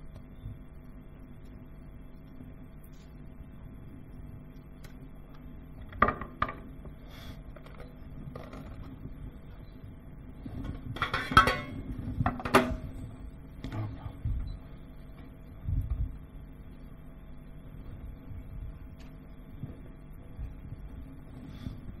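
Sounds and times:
faint steady hum: 0.0s - 22.0s
metal kitchenware clinking: 11.0s - 11.8s.

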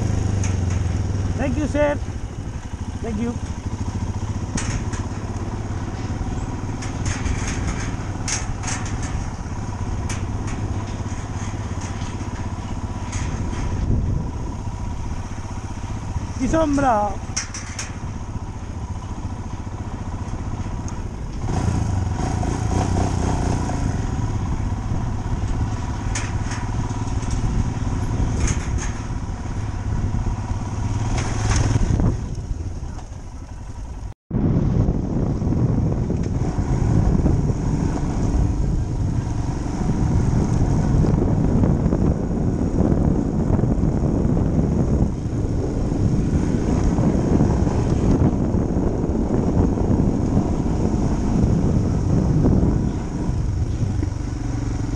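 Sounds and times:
motorcycle engine running: 0.0s - 54.9s
clattering over steel grating: 0.2s - 1.2s, 3.5s - 14.0s.

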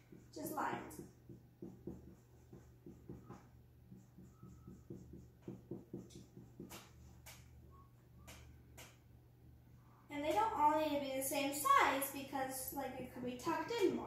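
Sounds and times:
marker scratching on whiteboard: 0.0s - 9.0s
low steady hum: 0.0s - 14.0s.

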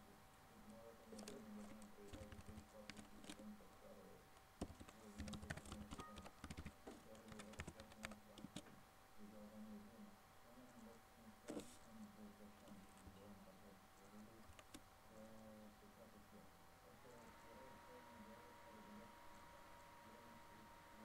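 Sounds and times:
faint steady hum: 0.0s - 21.0s
keyboard keystrokes clicking: 2.1s - 3.4s, 4.6s - 8.6s.

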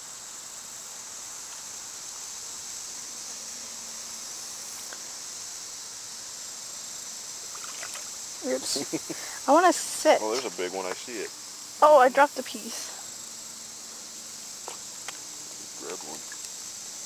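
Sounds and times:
insects chorus: 0.0s - 17.0s.

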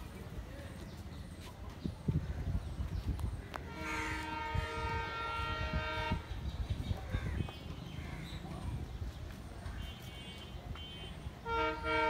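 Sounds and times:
low train rumble: 0.0s - 9.8s, 11.2s - 12.0s
diesel locomotive horn blast: 3.7s - 6.4s, 10.1s - 12.0s.

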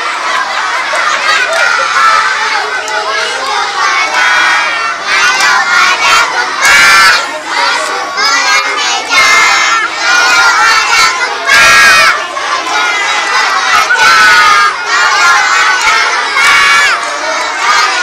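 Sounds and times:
children shouting and cheering: 0.0s - 18.0s.

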